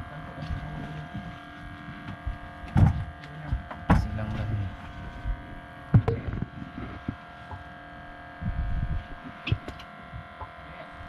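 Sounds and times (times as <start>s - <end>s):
steady hum of even tones: 0.0s - 11.0s
dull low thumps: 5.2s - 7.1s, 8.4s - 9.6s.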